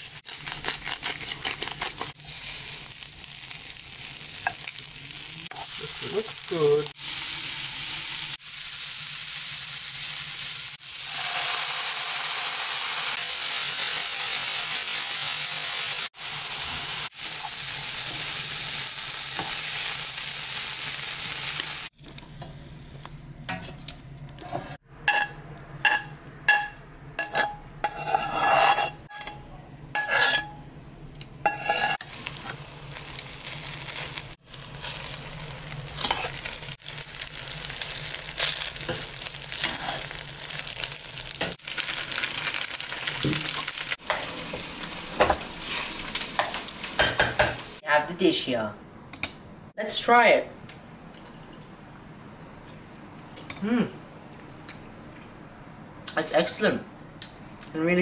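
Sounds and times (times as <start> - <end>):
food sizzling in a pan: 0.0 - 21.9, 31.4 - 47.8
utensil scraping and clinking pan: 24.5 - 29.4, 30.0 - 30.6, 31.4 - 32.0.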